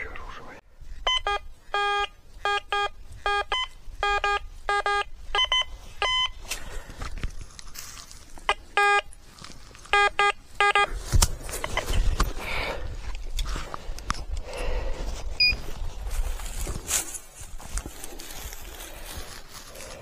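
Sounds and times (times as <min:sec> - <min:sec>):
metal detector beeping: 0:01.0 - 0:06.4, 0:08.4 - 0:09.2, 0:09.9 - 0:10.9, 0:15.4 - 0:15.6.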